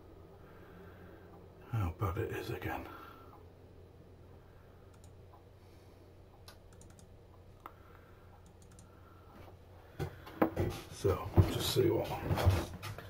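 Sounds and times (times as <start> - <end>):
low room hum: 0.0 - 13.0
mouse and keyboard clicks: 6.5 - 7.8, 8.4 - 8.9.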